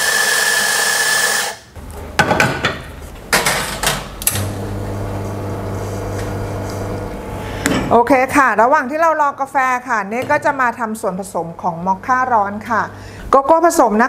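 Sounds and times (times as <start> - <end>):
espresso machine pump humming: 0.0 - 1.6, 4.4 - 7.8
coffee grinder grinding: 0.0 - 1.7, 4.5 - 7.7.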